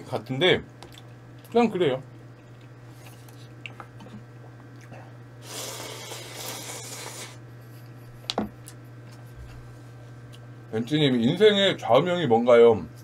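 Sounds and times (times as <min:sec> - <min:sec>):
low steady hum: 0:00.0 - 0:13.0
person eating noodles: 0:04.7 - 0:07.4.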